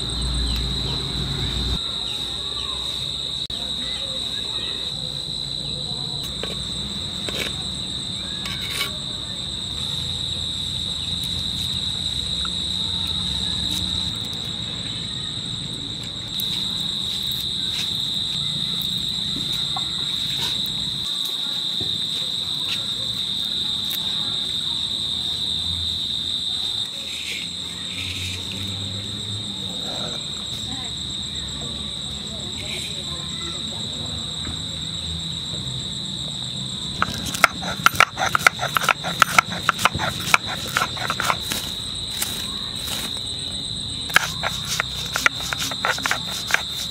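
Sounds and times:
insects droning: 0.0 - 46.9.

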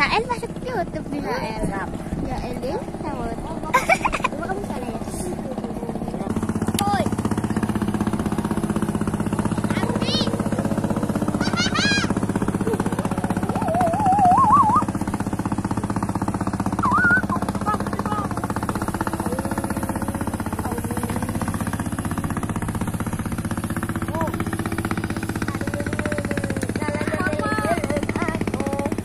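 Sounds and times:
boat engine droning: 0.0 - 29.0
high warbling calls: 9.6 - 25.8.

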